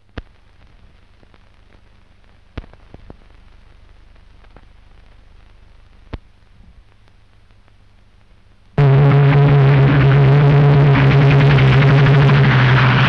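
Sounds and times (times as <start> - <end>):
faint crackle: 0.0 - 10.1
low hum: 0.0 - 13.0
sharp pops: 2.5 - 3.4.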